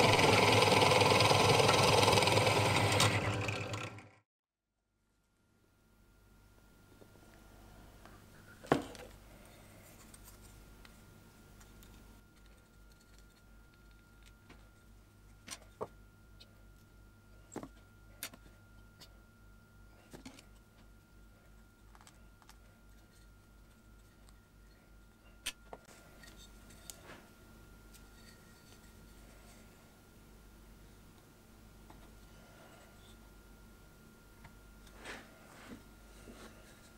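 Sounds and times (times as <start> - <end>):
faint steady hum: 4.8 - 36.9.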